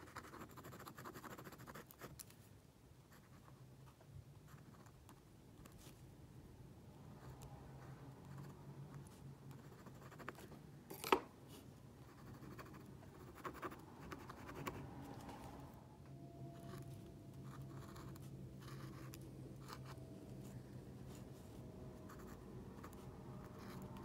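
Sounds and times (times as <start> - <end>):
pen nib scratching on paper: 0.0 - 2.4, 8.2 - 10.5, 12.0 - 14.8, 16.6 - 24.0
low steady hum: 0.0 - 24.0.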